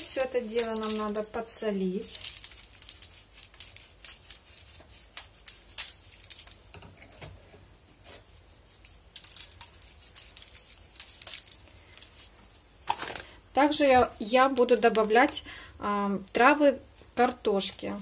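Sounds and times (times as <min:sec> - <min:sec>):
salt sprinkling on paper: 0:00.0 - 0:06.7, 0:08.2 - 0:15.4.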